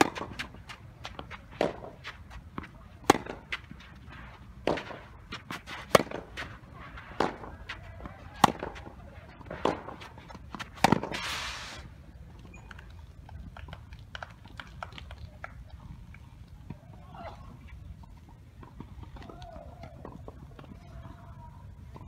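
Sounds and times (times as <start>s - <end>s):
tennis racket hitting ball: 0.0s - 11.6s
shoes sliding on court: 0.0s - 12.0s.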